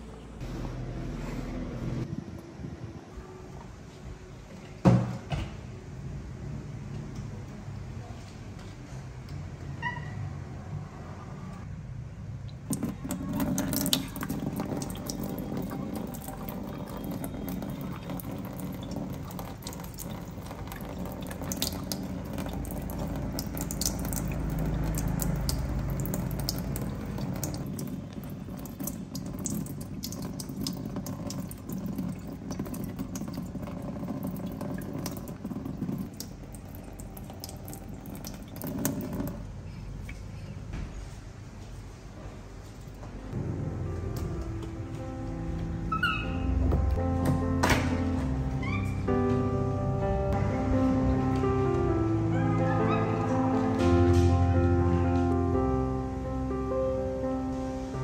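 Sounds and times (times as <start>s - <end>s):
water splashing: 12.5s - 40.3s
faucet running into steel sink: 12.7s - 39.4s.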